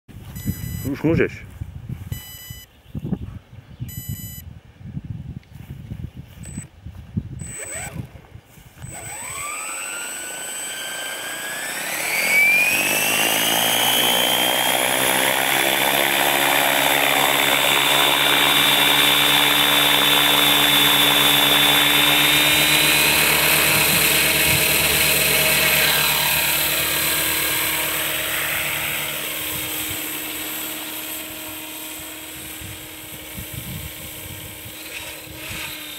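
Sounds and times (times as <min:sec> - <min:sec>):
short beeps: 0:00.3 - 0:01.0, 0:02.1 - 0:02.7, 0:03.9 - 0:04.5, 0:06.4 - 0:06.7, 0:07.4 - 0:07.9
model helicopter rotor whine: 0:07.4 - 0:35.9.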